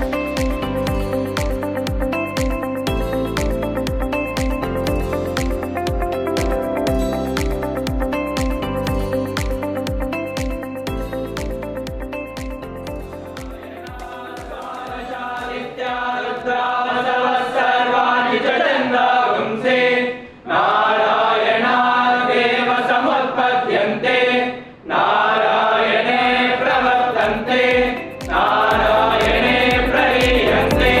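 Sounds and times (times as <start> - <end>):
instrumental music with steady beat: 0.0 - 15.8, 26.8 - 31.0
men chanting in unison: 13.6 - 31.0.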